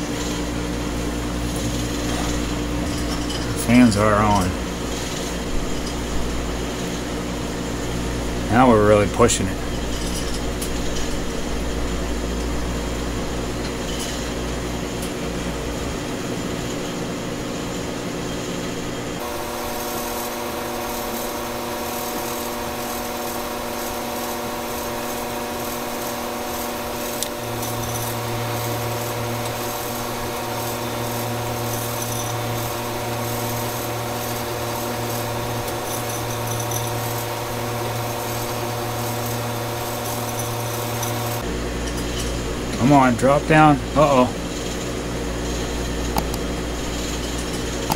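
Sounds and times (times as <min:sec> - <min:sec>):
deeper hum: 0:00.0 - 0:19.3
whirring hum of fans and motors: 0:00.0 - 0:47.9.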